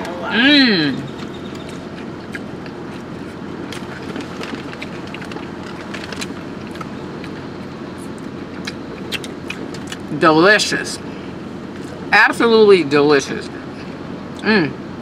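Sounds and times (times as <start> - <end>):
car engine and air conditioning: 0.0 - 15.0
chewing clicks: 1.1 - 7.4, 8.1 - 10.1
food wrappers rustling: 3.7 - 7.0.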